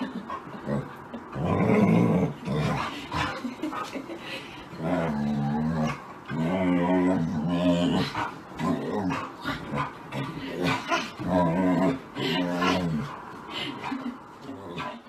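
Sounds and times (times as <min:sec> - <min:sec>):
dog growly grumbling: 0:00.6 - 0:03.4, 0:04.7 - 0:13.2.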